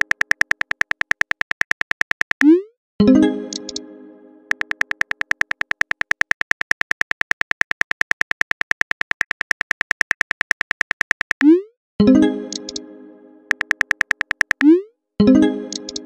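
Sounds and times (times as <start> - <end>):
electronic typing ticks: 0.0 - 2.7, 3.5 - 3.8, 4.5 - 11.7, 12.5 - 12.8, 13.5 - 14.9, 15.7 - 16.0.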